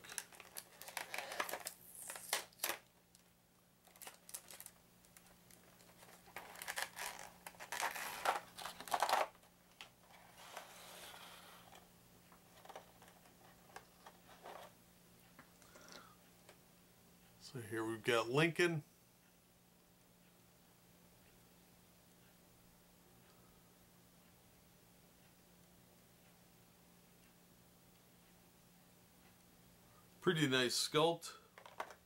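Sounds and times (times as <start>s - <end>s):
plastic blister tray crinkling: 0.0s - 11.8s, 12.4s - 14.7s, 31.6s - 32.0s.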